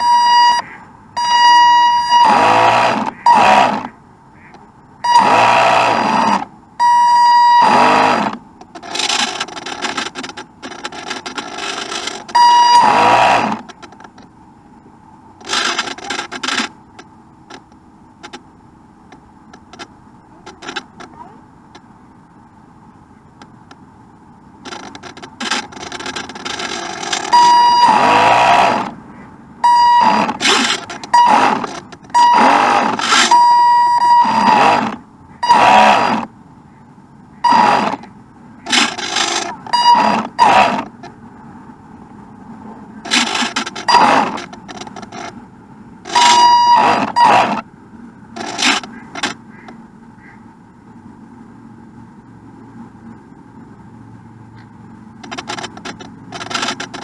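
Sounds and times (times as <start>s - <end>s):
model boat motor whining: 0.0s - 0.6s, 1.2s - 4.0s, 5.0s - 14.2s, 15.4s - 18.4s, 19.5s - 21.4s, 24.6s - 29.0s, 29.6s - 36.3s, 37.4s - 41.2s, 43.0s - 45.4s, 46.0s - 47.7s, 48.3s - 49.8s, 55.2s - 57.0s.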